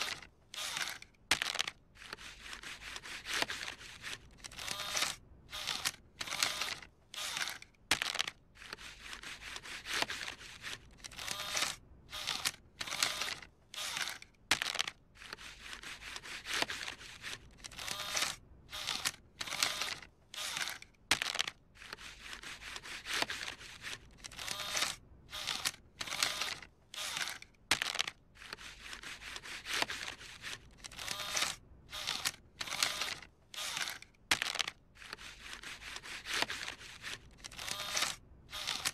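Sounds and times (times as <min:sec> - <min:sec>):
bill acceptor whirring: 0:00.0 - 0:01.0, 0:28.4 - 0:34.1, 0:35.0 - 0:38.9.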